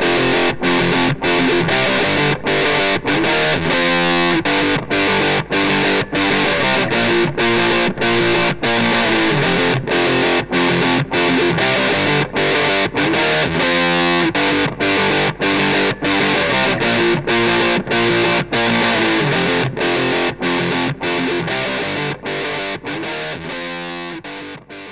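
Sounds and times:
distorted electric guitar riff: 0.0 - 24.9.

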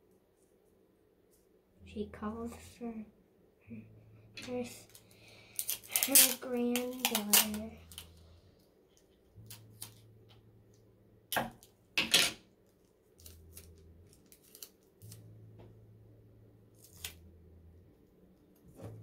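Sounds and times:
low hum: 1.3 - 5.9, 7.1 - 12.0, 12.6 - 19.0
sticky tape pulled and torn: 4.4 - 8.2, 8.9 - 10.1, 12.6 - 15.5, 16.8 - 17.3.

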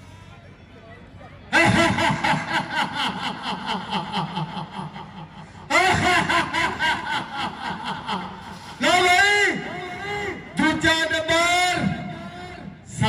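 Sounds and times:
man laughing: 1.5 - 11.2.

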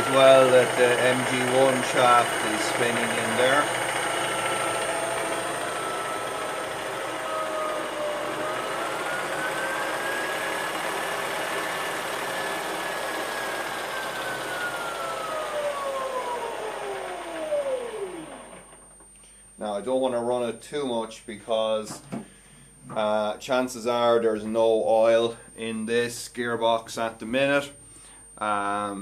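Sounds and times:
electric motor whine: 0.0 - 18.9.

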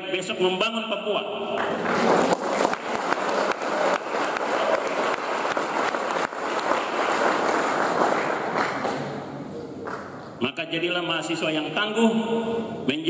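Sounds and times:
audience applauding: 1.6 - 9.2.

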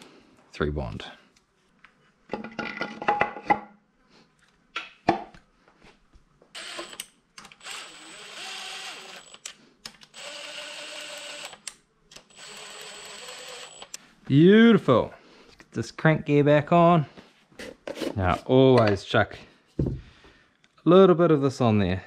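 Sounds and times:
power driver whining: 6.6 - 14.0.

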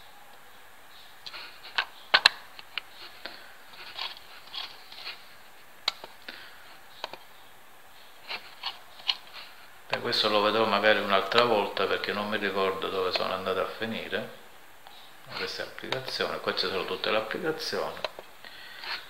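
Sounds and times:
faint soft rustling: 0.0 - 19.0.

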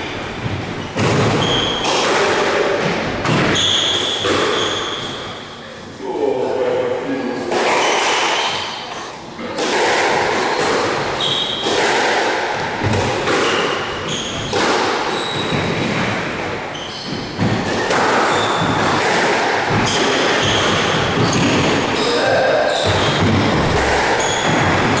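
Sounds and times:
sneakers squeaking on wooden floor: 0.0 - 2.0, 3.3 - 5.6, 11.1 - 11.8, 12.9 - 19.0, 19.8 - 25.0
squash ball cracking off racquets: 9.4 - 22.0, 22.8 - 25.0.

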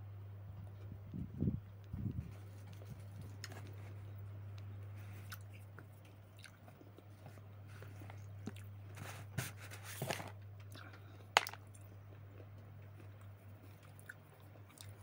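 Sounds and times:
steady low hum: 0.0 - 15.0
person chewing: 5.0 - 8.7, 10.7 - 15.0.

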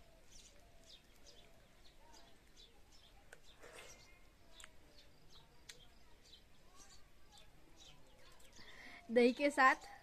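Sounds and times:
faint birds chirping: 0.0 - 10.0.

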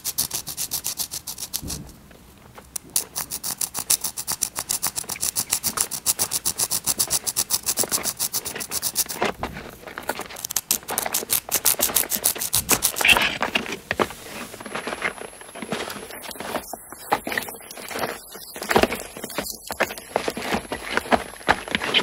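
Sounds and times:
pencil scraping on asphalt: 0.0 - 1.7, 2.8 - 22.0.

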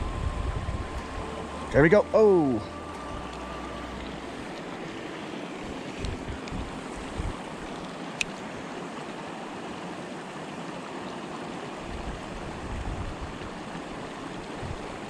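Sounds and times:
low bumps: 0.0 - 7.8
creek rushing: 0.0 - 15.0.

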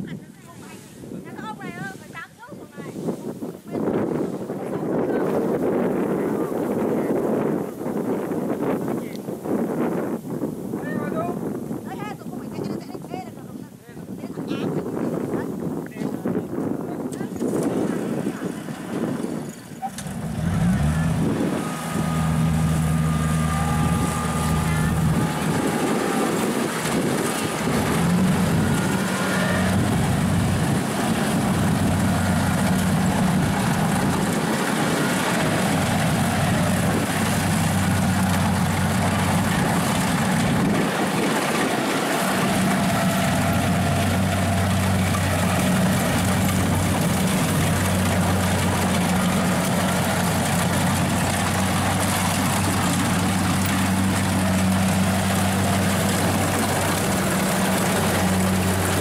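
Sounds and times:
combine harvester engine running: 16.6 - 59.0
machinery noise: 17.8 - 59.0.

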